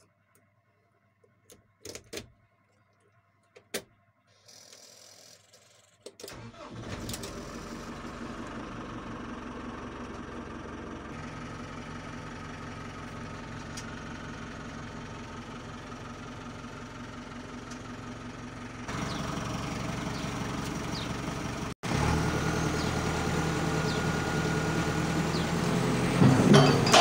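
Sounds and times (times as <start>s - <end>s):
diesel engine starting and idling: 6.3s - 27.0s.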